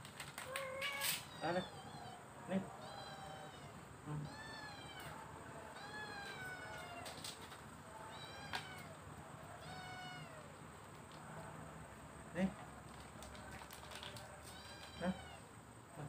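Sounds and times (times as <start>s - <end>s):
cats meowing: 0.4s - 10.6s, 14.1s - 15.5s.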